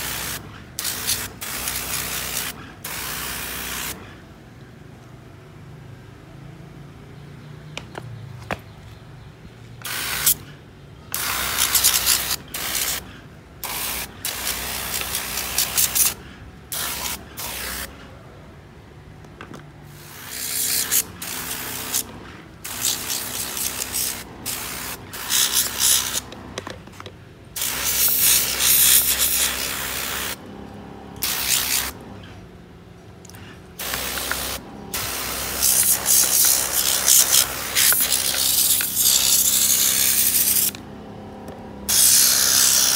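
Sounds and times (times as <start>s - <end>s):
water jet hissing: 19.9s - 26.3s, 27.6s - 30.4s, 33.8s - 40.8s.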